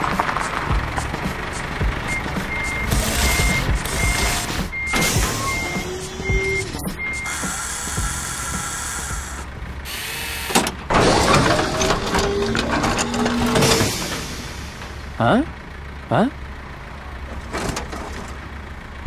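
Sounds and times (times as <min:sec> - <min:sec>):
crane machinery hissing: 0:01.4 - 0:12.4
reversing beeper: 0:02.0 - 0:10.6.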